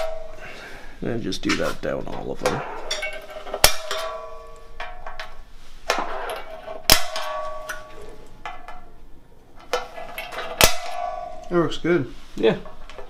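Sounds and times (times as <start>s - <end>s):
centre punch striking metal: 0.0s - 0.6s, 3.6s - 5.0s, 6.8s - 8.9s, 10.4s - 11.6s
metal bar ringing: 0.0s - 0.8s, 2.4s - 11.8s.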